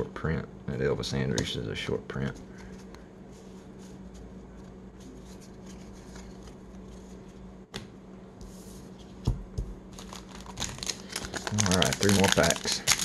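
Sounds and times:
steady low hum: 0.0s - 13.0s
cards rustling in the hand: 2.3s - 7.4s, 10.0s - 13.0s.

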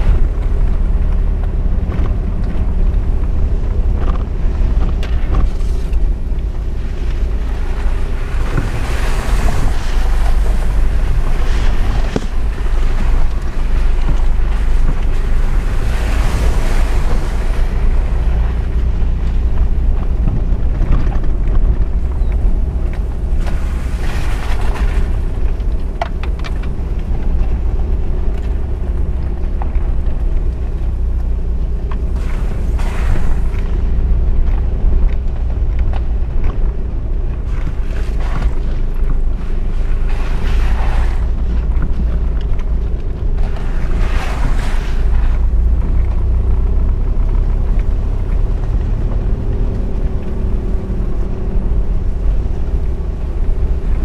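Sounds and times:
engine rumble with road noise: 0.0s - 54.0s
rushing noise: 30.8s - 42.3s.

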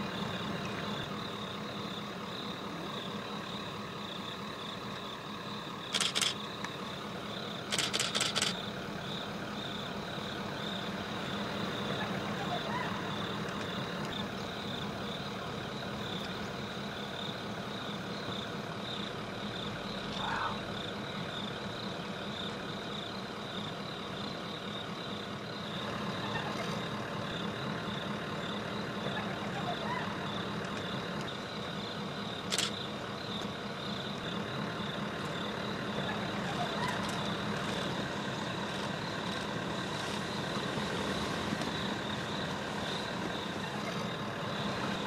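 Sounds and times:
insects chirring: 0.0s - 45.0s
vehicle engine idling: 0.0s - 45.0s
quick clicks: 5.9s - 6.8s, 7.7s - 8.6s, 32.4s - 32.8s.

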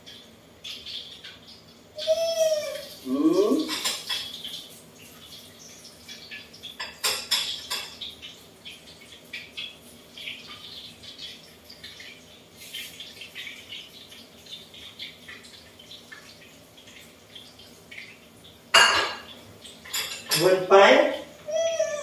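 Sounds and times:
pans and utensils clattering: 3.5s - 4.7s, 6.0s - 10.8s, 18.7s - 21.2s.

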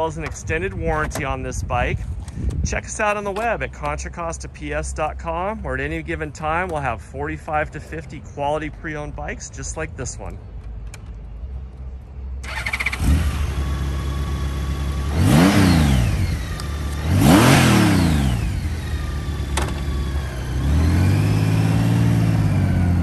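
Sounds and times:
motorcycle engine revving: 12.4s - 23.0s.

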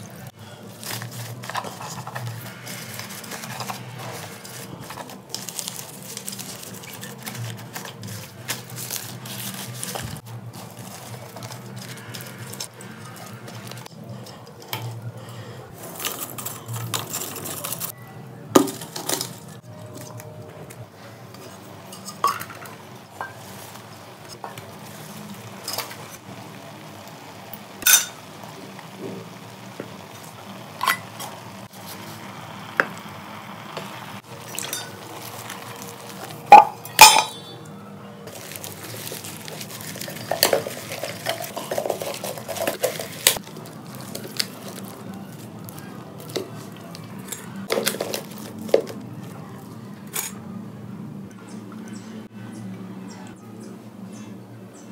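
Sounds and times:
leaves rustling in pot: 0.0s - 13.9s, 21.4s - 32.7s, 34.1s - 37.4s, 38.2s - 49.7s
saucepan and lid clanking: 36.5s - 37.6s.

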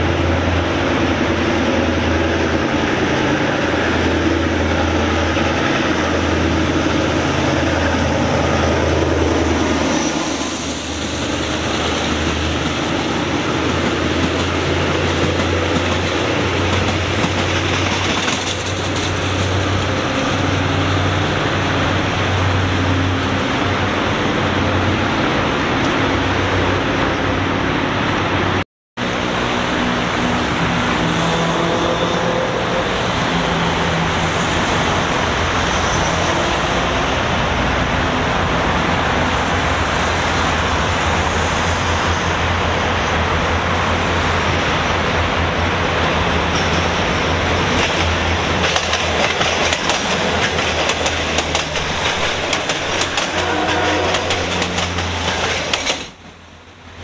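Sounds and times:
diesel train engines: 0.0s - 57.0s
rail noise: 0.0s - 57.0s
wheels clacking over rail joints: 9.2s - 20.7s, 46.2s - 56.5s.

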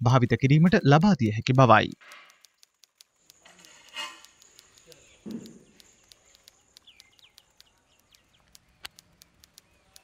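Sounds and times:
sharp clicks: 0.1s - 10.0s
bird chirps: 0.3s - 10.0s.

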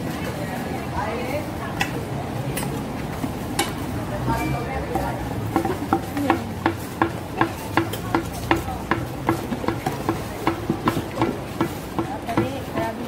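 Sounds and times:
wooden pestle pounding in mortar: 4.9s - 13.0s.

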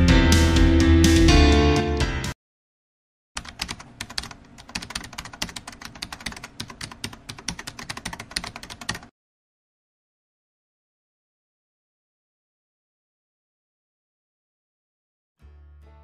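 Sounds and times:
fast keyboard typing: 3.4s - 9.1s.

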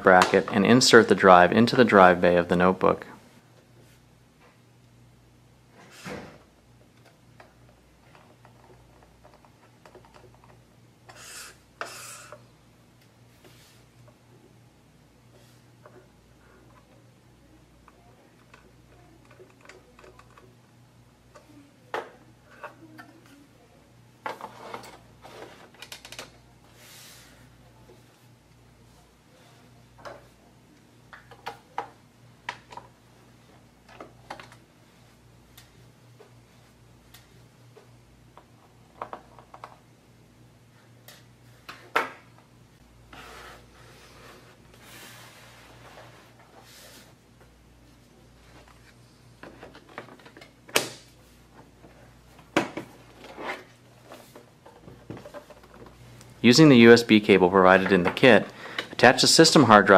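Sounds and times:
soft sliding rub: 13.3s - 13.9s, 43.2s - 47.2s.

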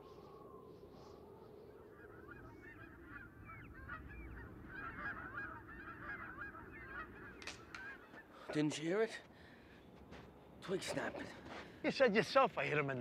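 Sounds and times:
geese honking in flight: 1.9s - 8.5s.

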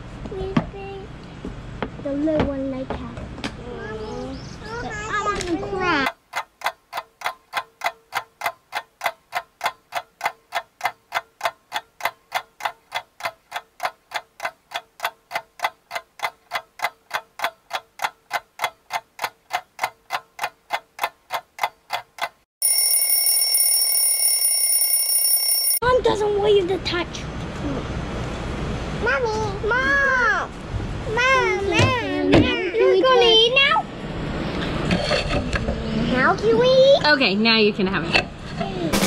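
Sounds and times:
clock ticking: 6.1s - 25.8s
alarm ringing: 22.6s - 25.8s.

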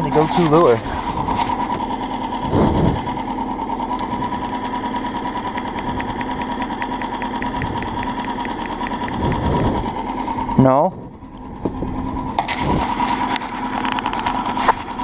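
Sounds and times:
outboard motor humming: 0.0s - 15.0s
fast light ticking: 3.8s - 9.7s.

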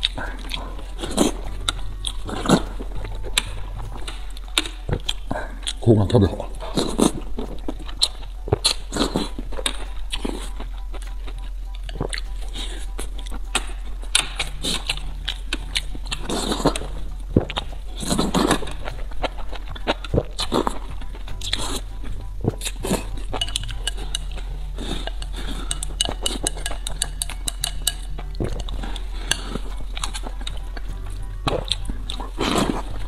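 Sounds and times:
chewing: 0.0s - 33.0s
chopsticks clicking on a bowl: 22.6s - 30.8s.

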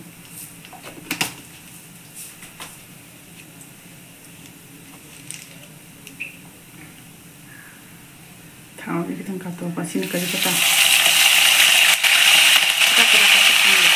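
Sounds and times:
oil sizzling: 9.9s - 13.9s.

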